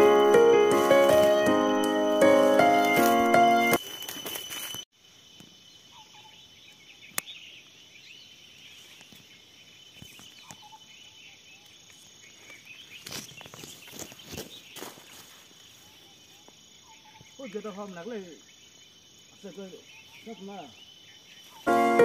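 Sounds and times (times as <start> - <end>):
piano music: 0.0 - 3.8, 21.7 - 22.0
buzzing forest insects: 0.0 - 22.0
faint bird chirps: 5.7 - 21.7.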